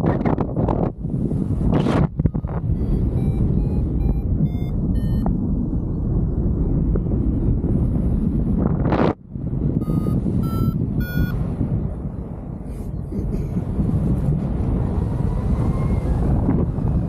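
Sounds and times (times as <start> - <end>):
wind buffeting microphone: 0.0 - 17.0
variometer rising beeps: 2.2 - 5.4, 9.8 - 11.4.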